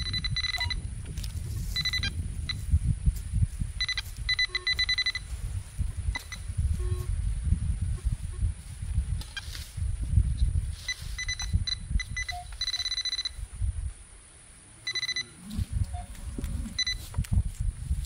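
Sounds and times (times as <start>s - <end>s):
metal detector beeping: 0.0s - 0.9s, 1.6s - 2.7s, 3.8s - 5.4s, 6.1s - 7.1s, 9.2s - 9.6s, 10.7s - 13.4s, 14.8s - 17.2s.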